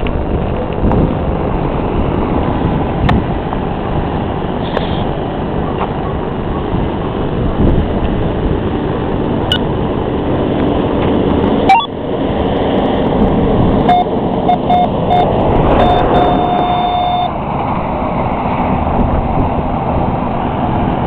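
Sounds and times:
motor vehicle rumble: 0:00.0 - 0:21.0
wind noise: 0:00.0 - 0:21.0
short electronic beeps: 0:11.7 - 0:11.9, 0:13.9 - 0:17.4.

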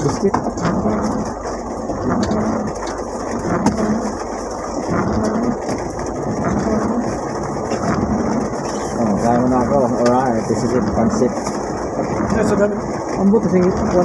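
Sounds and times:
rain on a vehicle roof: 0:00.0 - 0:14.0
van engine running: 0:00.0 - 0:14.0.

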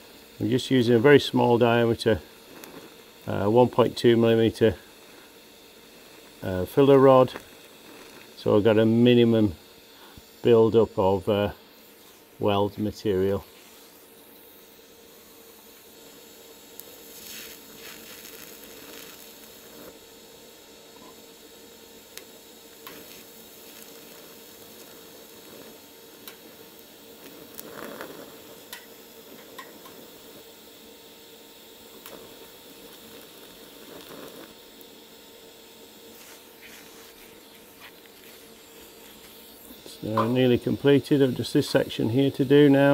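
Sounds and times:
faint steady hum: 0:00.0 - 0:42.9
welding arc hissing: 0:00.0 - 0:42.9
welding arc click: 0:00.4 - 0:10.3, 0:16.7 - 0:20.0, 0:22.0 - 0:30.6, 0:31.8 - 0:35.0, 0:36.0 - 0:42.9.

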